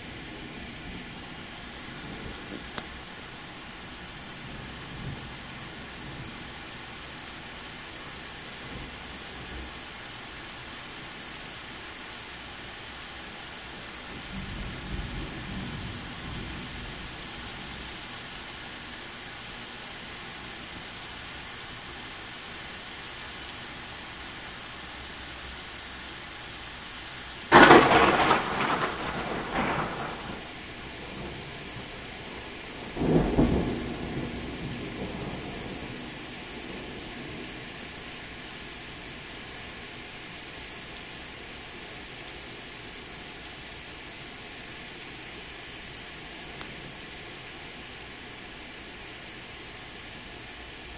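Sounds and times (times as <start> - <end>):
heavy rain: 0.0 - 50.9
thunder crackling and rumbling: 27.5 - 36.2.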